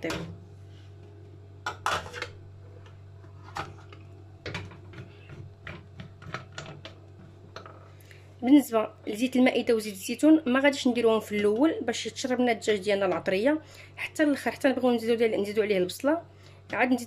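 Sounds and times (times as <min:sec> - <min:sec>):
low steady hum: 0:00.0 - 0:17.0
metal lid clinking and scraping: 0:01.7 - 0:02.3.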